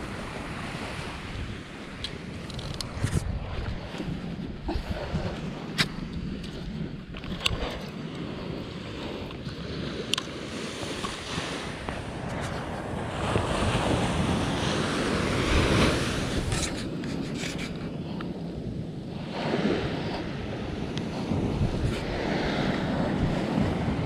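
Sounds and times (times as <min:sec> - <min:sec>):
wind buffeting microphone: 0:00.0 - 0:24.0
surf washing onto beach: 0:08.4 - 0:17.6.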